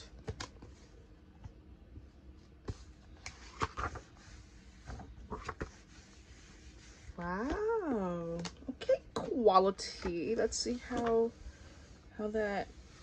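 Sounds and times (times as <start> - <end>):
paper pages rustling: 2.6 - 6.1.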